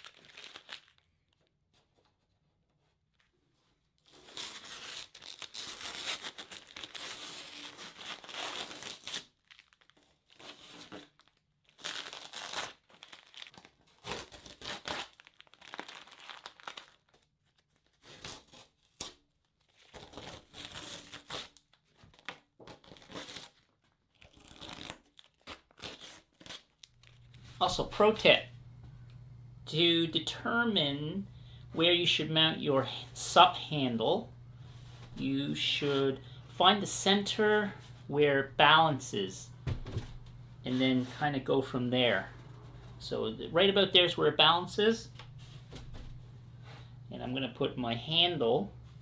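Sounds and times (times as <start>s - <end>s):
masking tape peeling off: 4.0s - 17.2s, 17.8s - 27.3s.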